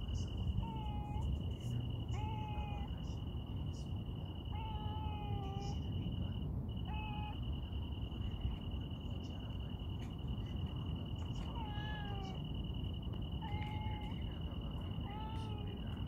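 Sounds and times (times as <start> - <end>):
high insect trill: 0.0 - 16.0
cat meowing: 0.2 - 7.5, 11.3 - 16.0.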